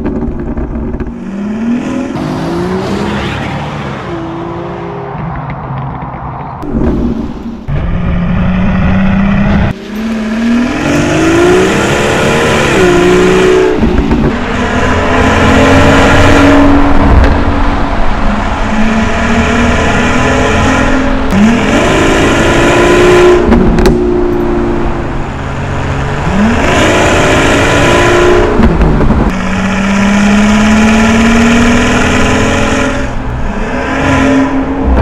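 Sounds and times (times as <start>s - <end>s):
car engine accelerating hard: 8.0s - 35.0s.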